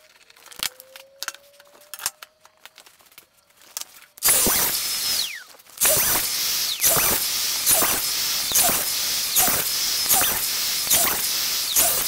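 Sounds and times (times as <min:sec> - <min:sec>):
track saw cutting plywood: 0:04.2 - 0:12.0.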